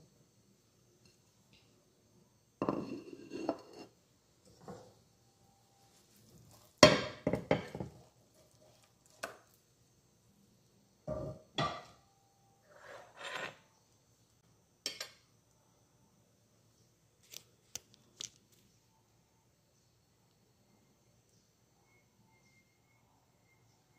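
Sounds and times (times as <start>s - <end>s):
plate and utensils clattering: 2.6s - 4.9s, 11.1s - 12.0s
scraping on plate: 2.6s - 5.0s, 12.6s - 13.7s.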